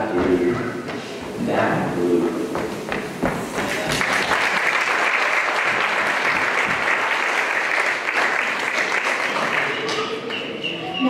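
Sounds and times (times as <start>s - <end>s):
audience applauding: 3.5s - 10.7s.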